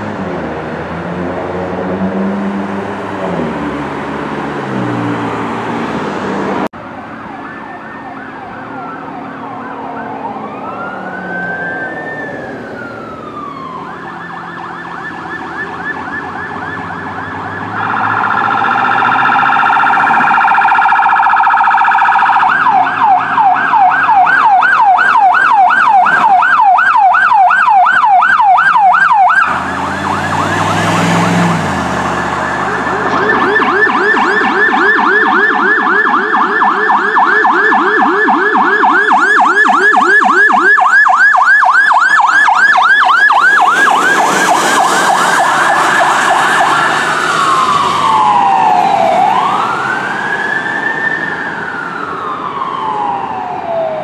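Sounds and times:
electronic sirens yelping: 7.0 - 54.0
vehicle engine passing: 28.5 - 54.0.

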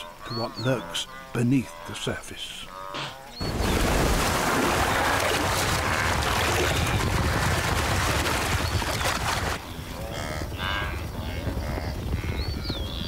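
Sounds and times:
wildebeest calls: 0.0 - 3.4
water splashing and churning: 3.4 - 9.6.

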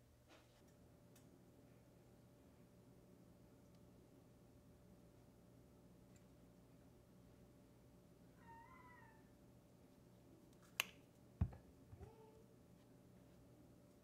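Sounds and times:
small knocks: 11.4 - 12.1.

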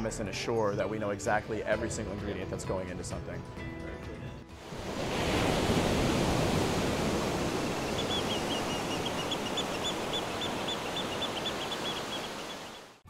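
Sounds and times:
surf-like rushing noise: 4.6 - 13.0.

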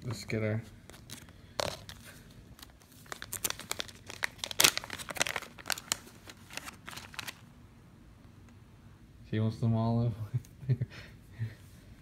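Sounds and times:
plastic bag crinkling: 0.9 - 7.5.

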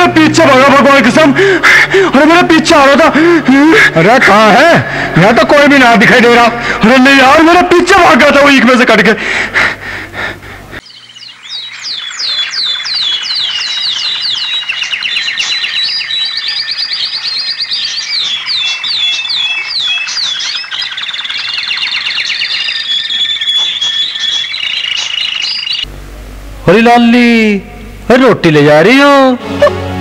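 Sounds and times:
falling chirping whistles: 10.8 - 25.9
steady high whistling tone: 10.8 - 25.9.

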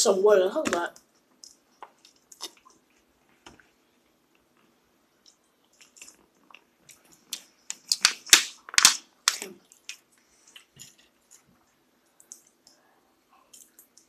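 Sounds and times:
crunching while eating: 5.2 - 11.5.

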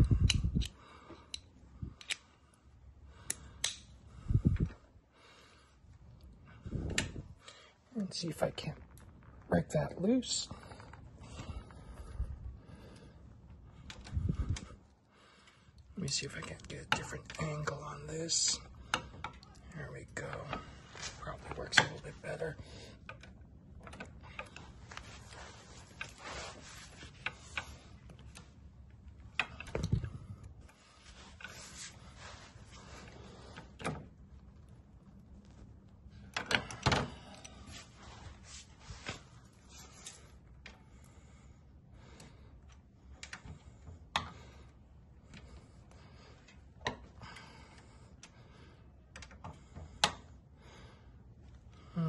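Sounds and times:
metal clicks of socket tools: 0.2 - 2.3
metallic clicks of a breaker bar: 3.2 - 3.9.

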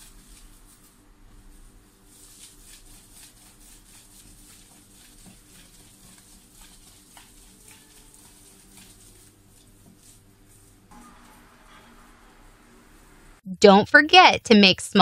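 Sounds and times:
plastic cling film crinkling: 0.0 - 11.4.

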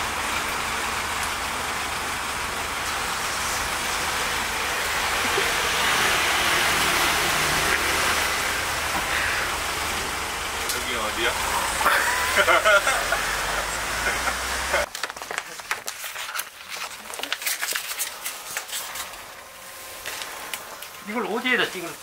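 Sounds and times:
hiss of passing cars: 0.0 - 14.9.

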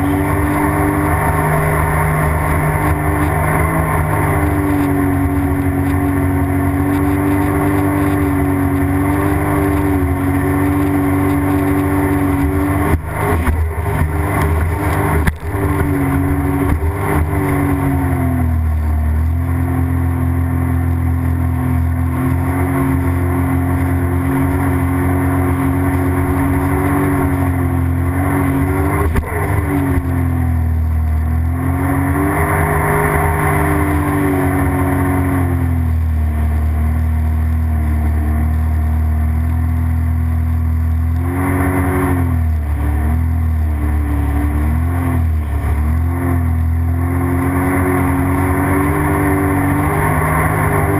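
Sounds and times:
rushing water and spray: 0.0 - 36.2
jet ski engine: 0.0 - 50.9.

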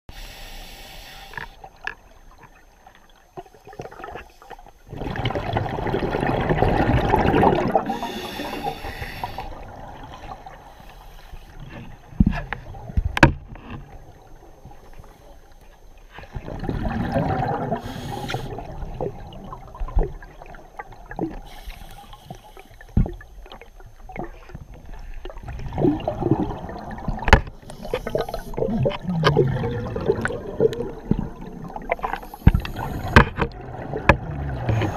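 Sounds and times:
regulator inhalation hiss: 0.1 - 1.6, 7.9 - 9.6, 10.6 - 11.6, 17.8 - 18.6, 21.4 - 23.0, 27.6 - 28.6, 32.0 - 33.2
exhaled bubbles rushing: 4.9 - 8.7, 16.3 - 21.5, 25.3 - 34.9.

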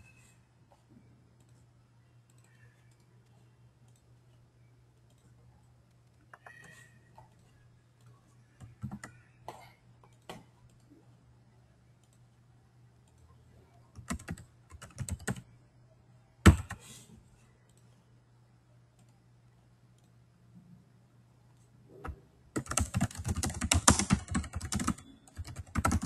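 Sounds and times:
keyboard typing: 6.1 - 9.3, 13.9 - 15.4, 22.0 - 26.0.

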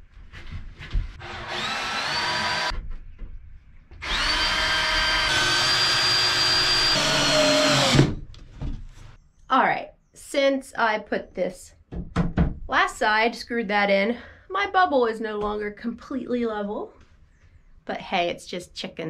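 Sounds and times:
cordless drill motor whine: 1.2 - 2.7, 4.0 - 8.1.

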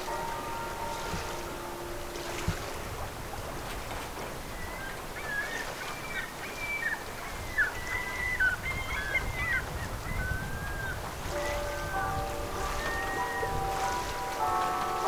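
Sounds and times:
church bells pealing: 0.0 - 4.1, 11.1 - 15.0
low rumble of wind and water: 0.0 - 15.0
waterbirds calling: 0.0 - 15.0.

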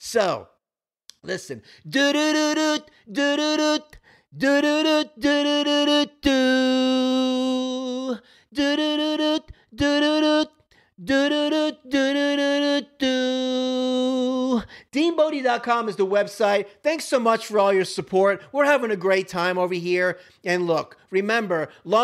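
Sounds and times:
person singing unaccompanied: 1.8 - 14.7.

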